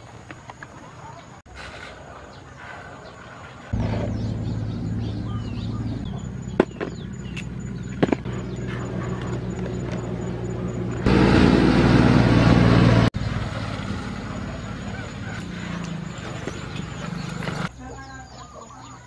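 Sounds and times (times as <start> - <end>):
motor engine humming: 3.7 - 17.7.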